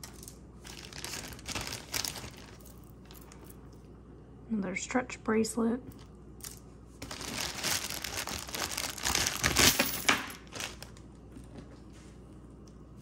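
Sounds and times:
packaging crinkling and rustling: 0.0s - 3.6s, 6.4s - 11.9s.

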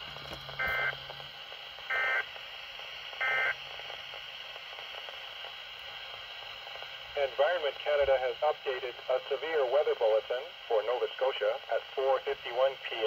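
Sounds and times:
radio hiss: 0.0s - 13.0s
buzzy digital data tones: 3.2s - 3.6s.

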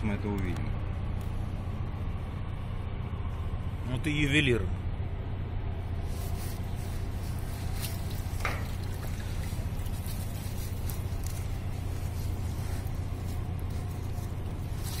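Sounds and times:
steady low hum: 0.0s - 15.0s
water sloshing and trickling: 6.0s - 15.0s.

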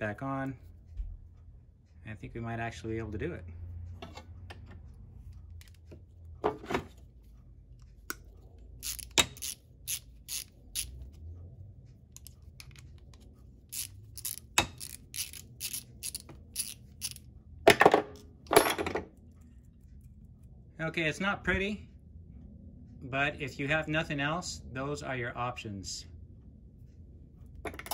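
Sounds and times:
hand ratchet clicking: 8.1s - 11.1s, 12.2s - 17.2s.

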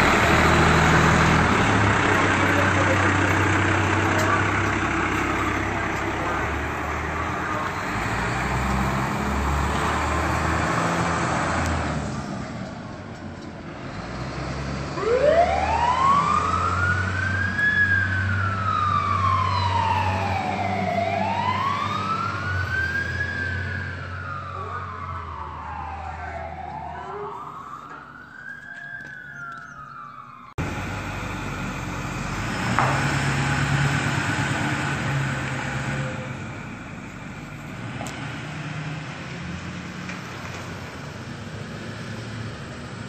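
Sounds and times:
fire engine engine and road noise: 0.0s - 43.0s
siren wailing: 15.0s - 32.0s.

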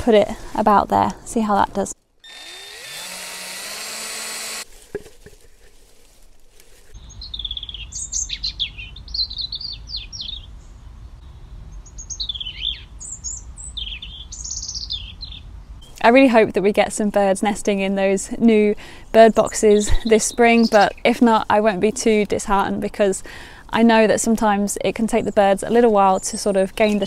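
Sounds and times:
steady whir: 2.2s - 4.6s
songbird singing: 6.9s - 16.1s, 19.1s - 23.1s, 24.0s - 27.0s.

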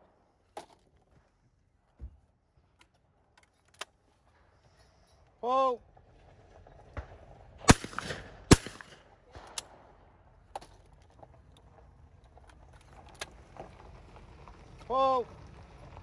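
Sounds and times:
shotgun shots: 7.6s - 9.9s.

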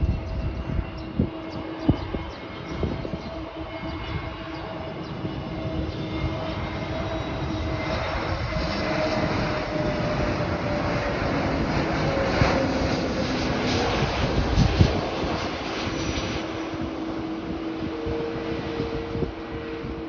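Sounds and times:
jet airliner engine hum: 0.0s - 20.0s.

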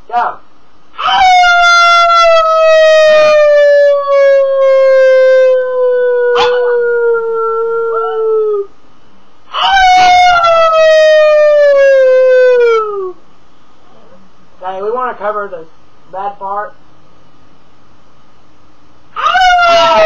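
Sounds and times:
dog howling: 1.0s - 8.7s, 9.5s - 13.2s, 19.2s - 20.0s
person howling: 1.0s - 8.7s, 9.5s - 13.2s, 19.2s - 20.0s.

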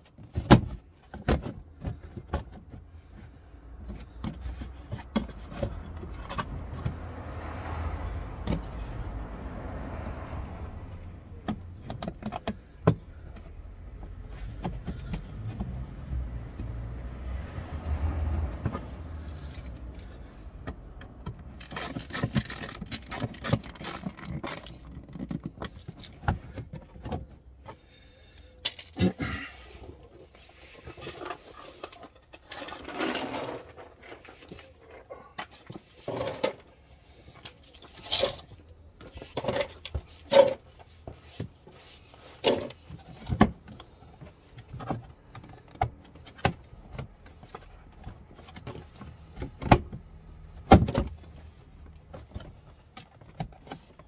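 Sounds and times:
clicks and scrapes of fasteners: 18.6s - 27.8s, 28.6s - 29.2s, 30.4s - 36.7s, 37.3s - 50.0s.

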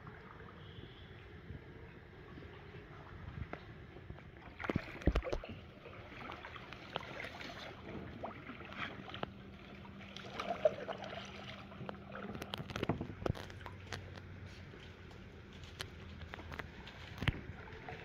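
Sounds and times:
kayak paddle splashing in water: 4.3s - 14.5s.

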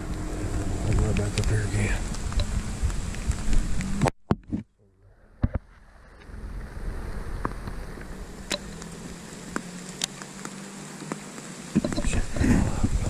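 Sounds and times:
steady hiss: 0.0s - 4.1s, 5.0s - 13.0s
crossbow clicks and taps: 9.5s - 12.1s.

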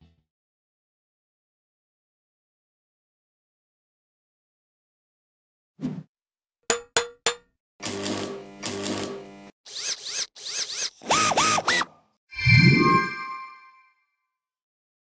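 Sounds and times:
buzzing mechanical whir: 7.8s - 11.8s.

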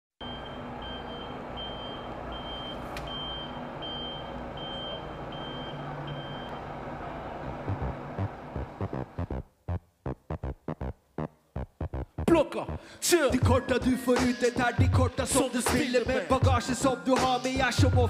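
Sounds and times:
vehicle reversing alarm beeping: 0.2s - 8.0s
low engine rumble: 0.2s - 9.7s
music beat thumps: 7.6s - 18.0s.

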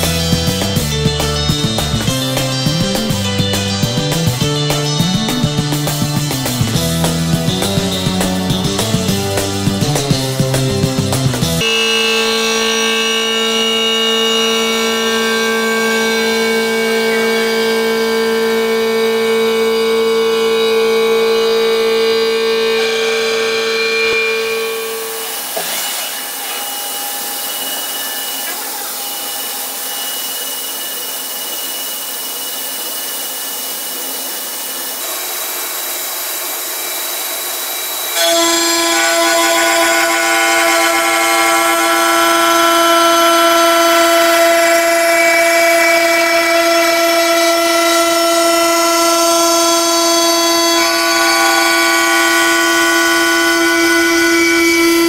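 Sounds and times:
milling cutter cutting metal: 0.0s - 55.0s
milling machine whine: 0.0s - 55.0s.

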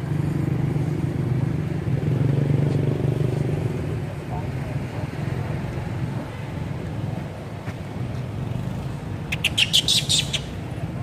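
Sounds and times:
baby monkey squealing: 9.3s - 10.5s.

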